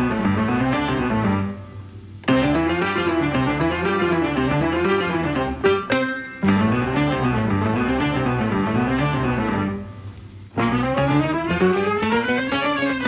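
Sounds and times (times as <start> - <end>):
instrumental background music: 0.0 - 13.0.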